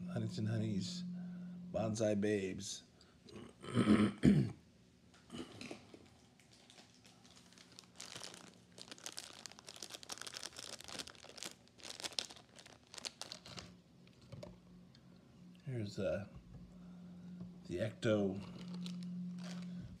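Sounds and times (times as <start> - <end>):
faint steady hum: 0.0 - 20.0
plastic crinkling: 5.8 - 14.5, 18.4 - 20.0.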